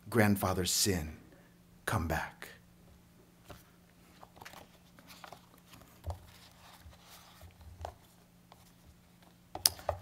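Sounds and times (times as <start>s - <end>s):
book and papers handled: 3.4s - 10.0s.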